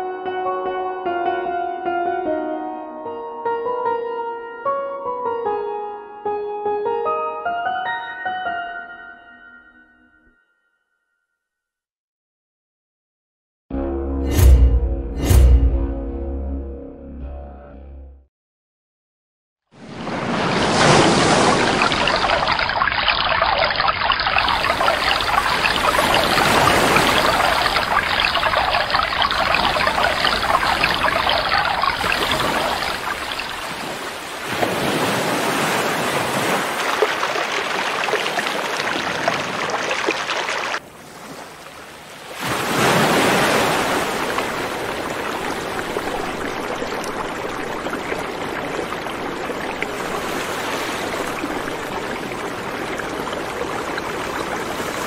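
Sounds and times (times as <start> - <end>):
ocean surf rushing: 19.8 - 41.5, 42.2 - 55.0.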